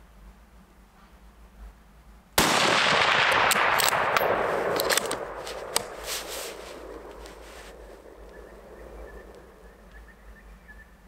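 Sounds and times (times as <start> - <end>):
rifle shot echoing: 2.4 - 9.8
metallic rifle bolt clicks: 2.8 - 6.0.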